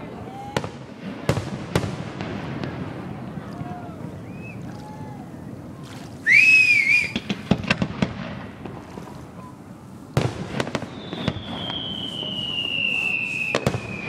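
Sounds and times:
firework cracks: 0:00.4 - 0:04.4, 0:06.2 - 0:09.5, 0:10.1 - 0:14.0
firework bang: 0:00.6 - 0:03.8, 0:07.0 - 0:09.1, 0:10.2 - 0:14.0
firework whistle: 0:04.2 - 0:04.7, 0:06.2 - 0:07.7, 0:10.4 - 0:14.0.

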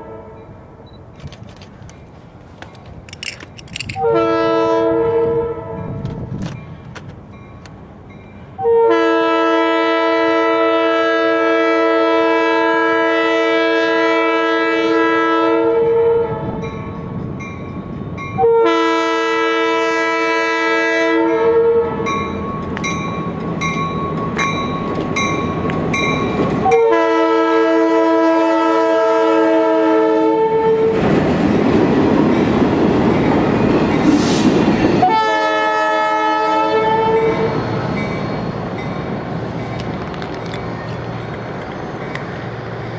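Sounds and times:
locomotive air horn blasts: 0:00.0 - 0:00.8, 0:03.9 - 0:06.1, 0:08.6 - 0:16.6, 0:18.4 - 0:22.2, 0:26.6 - 0:31.0, 0:35.0 - 0:37.7
train rushing past: 0:15.0 - 0:42.9.

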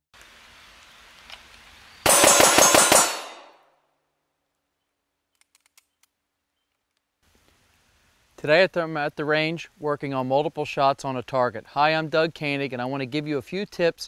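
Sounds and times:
rapid pistol shots: 0:02.1 - 0:03.5.

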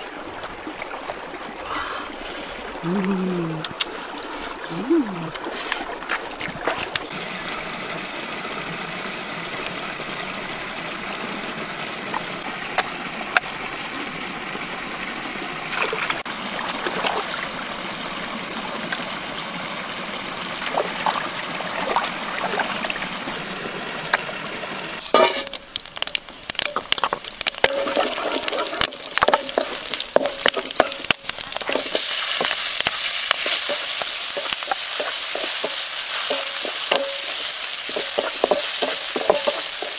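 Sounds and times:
stream flowing over rocks: 0:00.0 - 0:39.9
oil sizzling: 0:25.0 - 0:39.9
wooden spatula clacking in wok: 0:26.6 - 0:39.9.

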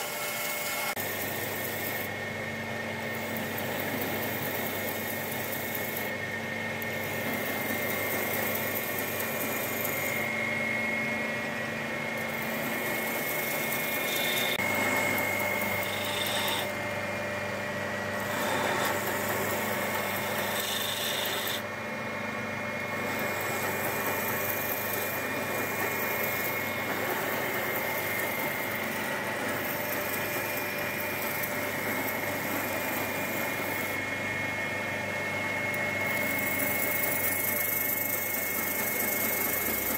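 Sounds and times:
belt sander humming: 0:00.0 - 0:39.9
grinding hiss: 0:12.2 - 0:16.8, 0:18.2 - 0:21.6.

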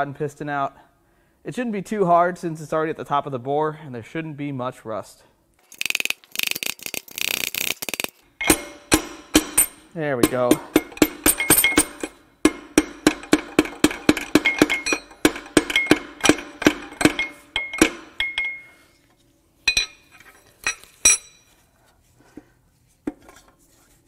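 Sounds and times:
rapid hammer taps on metal: 0:08.4 - 0:18.6
metal clinks: 0:08.4 - 0:18.8, 0:19.7 - 0:21.5.

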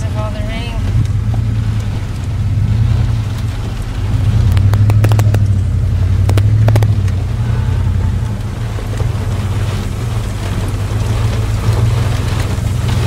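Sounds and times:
car engine and road noise drone: 0:00.0 - 0:13.0
sharp clicks: 0:04.4 - 0:07.2.

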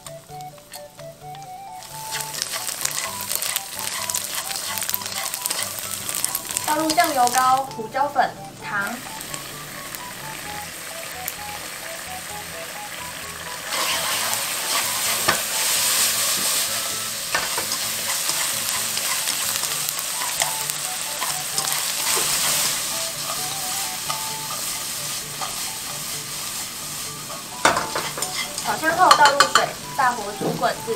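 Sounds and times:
chopsticks clicking against pan: 0:00.0 - 0:07.4, 0:17.3 - 0:22.4, 0:27.3 - 0:29.8
tofu sizzling in a wok: 0:00.0 - 0:30.9.

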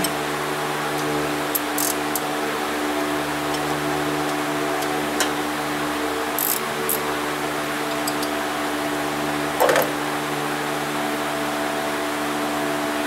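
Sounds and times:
steady machine hum: 0:00.0 - 0:13.0
wrench clicking on metal: 0:01.6 - 0:02.2, 0:06.4 - 0:07.0, 0:07.9 - 0:08.3
metal clank: 0:09.6 - 0:10.0.

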